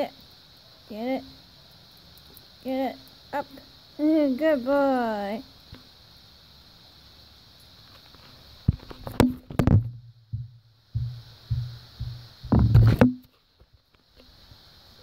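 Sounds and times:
knocks and rubs on phone microphone: 8.7 - 13.3.

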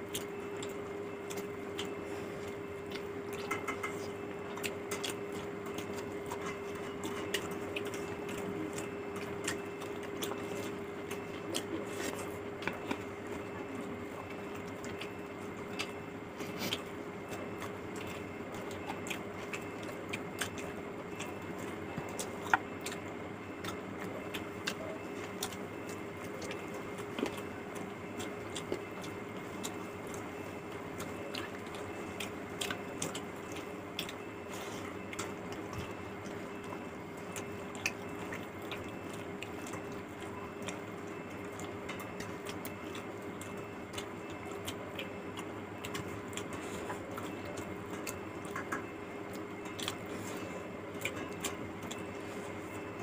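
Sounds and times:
chewing with wet mouth clicks: 0.0 - 53.0
steady low hum: 0.0 - 53.0.

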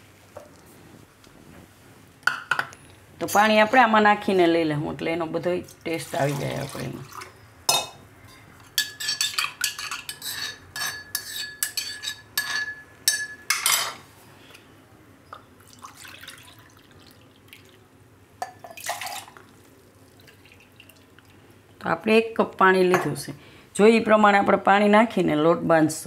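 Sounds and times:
spoon scraping metal mortar: 8.3 - 12.8
water splashing into cup: 15.6 - 17.8, 18.7 - 21.3.

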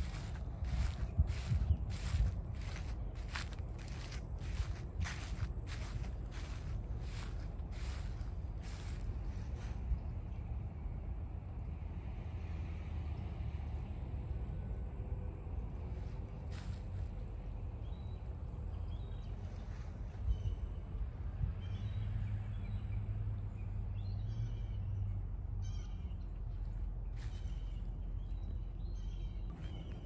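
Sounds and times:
birds chirping: 0.0 - 9.8, 25.8 - 30.0
low outdoor rumble: 0.0 - 30.0.

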